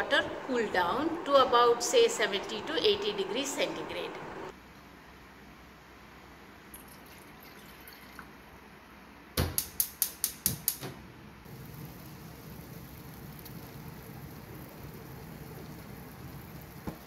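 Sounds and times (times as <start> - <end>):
water boiling in a saucepan: 11.5 - 17.0.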